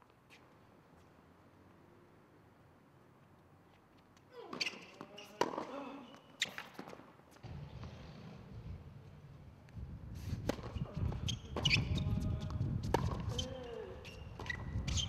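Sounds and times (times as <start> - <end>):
sneaker squeaks: 4.2 - 8.3, 10.5 - 12.3, 12.9 - 15.0.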